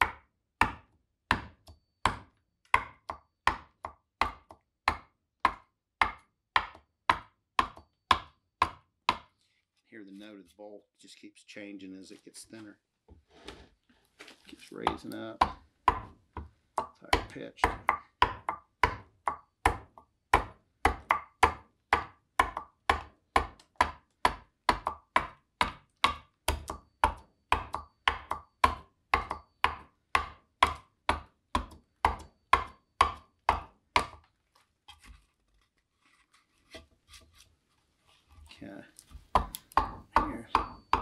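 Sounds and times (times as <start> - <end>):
adze chopping into wood: 0.0 - 9.3, 14.8 - 16.2, 16.8 - 34.2, 39.4 - 41.0.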